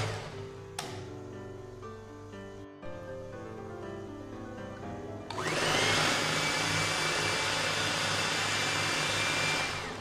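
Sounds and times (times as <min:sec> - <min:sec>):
electric mixer whining: 0:00.0 - 0:00.5, 0:05.3 - 0:10.0.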